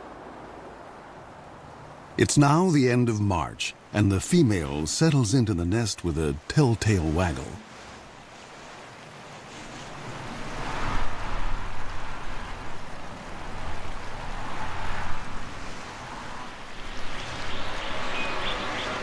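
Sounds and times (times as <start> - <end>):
wind rushing through branches: 0.0 - 2.6, 6.9 - 19.0.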